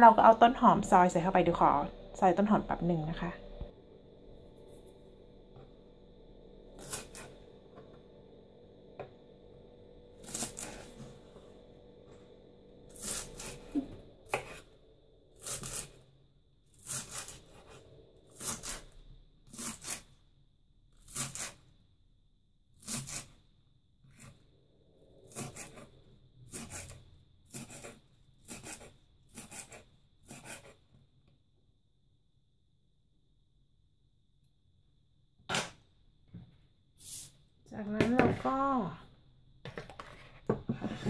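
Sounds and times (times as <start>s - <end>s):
knife cutting on wooden board: 6.8s - 7.4s, 10.2s - 11.1s, 12.9s - 14.7s, 15.4s - 16.0s, 16.8s - 17.8s, 18.4s - 18.9s, 19.5s - 20.1s, 21.1s - 21.6s, 22.8s - 23.3s, 25.3s - 25.9s, 26.5s - 30.8s.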